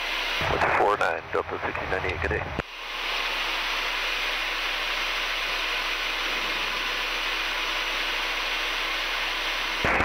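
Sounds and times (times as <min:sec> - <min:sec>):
jet engines and air rushing: 0:00.0 - 0:10.0.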